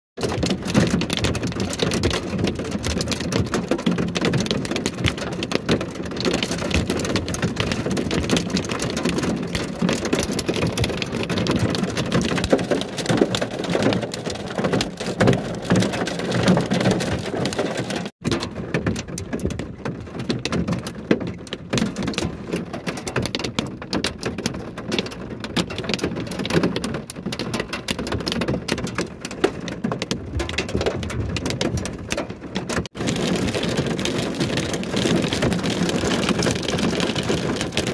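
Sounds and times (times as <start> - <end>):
torrential rain and hail: 0.2 - 37.9.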